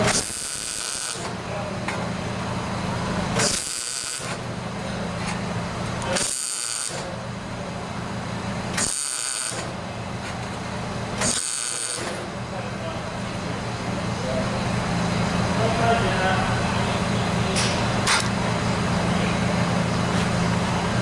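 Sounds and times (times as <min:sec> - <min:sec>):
welder buzzing and crackling: 0:00.0 - 0:01.3, 0:03.3 - 0:04.5, 0:06.0 - 0:07.1, 0:08.7 - 0:09.8, 0:11.2 - 0:12.2.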